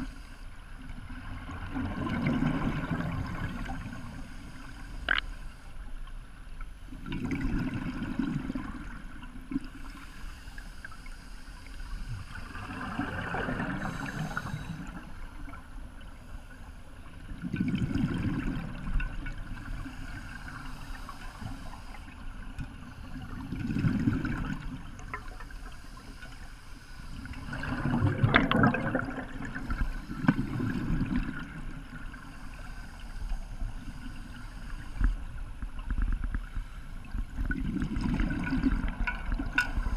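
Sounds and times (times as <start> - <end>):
bubbles gurgling underwater: 1.0 - 3.9, 7.0 - 9.8, 12.5 - 15.0, 17.3 - 19.7, 22.6 - 25.4, 27.4 - 32.1, 37.2 - 39.9.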